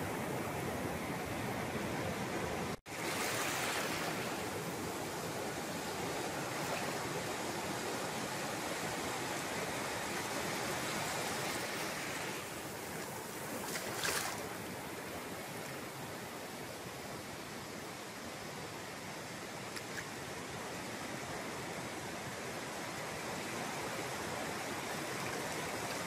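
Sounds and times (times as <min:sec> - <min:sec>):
ocean surf breaking: 0:00.8 - 0:08.1.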